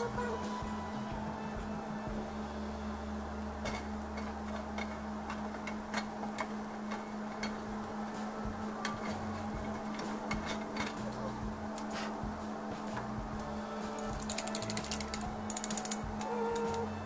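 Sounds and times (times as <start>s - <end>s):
low hum: 0.0s - 17.0s
hot pan clicking and ticking: 3.6s - 8.0s, 13.9s - 16.9s.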